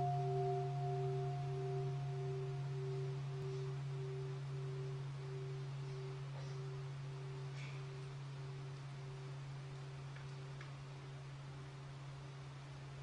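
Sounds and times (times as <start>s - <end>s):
temple bell ringing: 0.0s - 7.4s.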